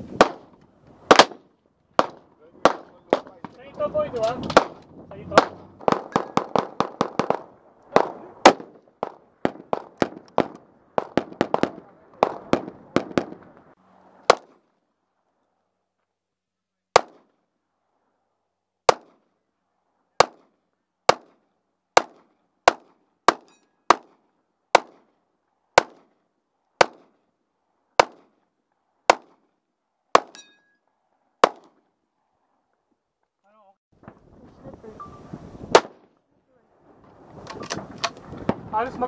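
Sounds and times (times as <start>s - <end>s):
gunshots: 0.2s - 3.6s, 4.4s - 13.4s, 14.2s - 14.6s, 16.9s - 17.3s, 18.8s - 19.2s, 20.2s - 21.4s, 22.0s - 25.1s, 25.8s - 26.2s, 26.8s - 27.2s, 28.0s - 28.4s, 29.1s - 29.5s, 30.1s - 30.4s, 31.4s - 31.8s, 35.7s - 36.1s.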